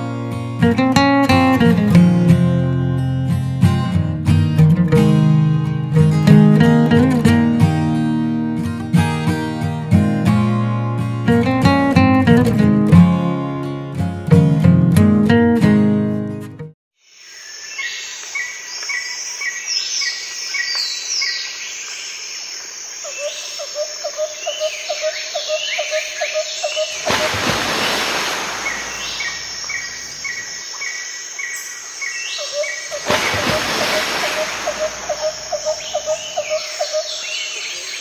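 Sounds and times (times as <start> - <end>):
birds chirping: 17.1 - 38.0.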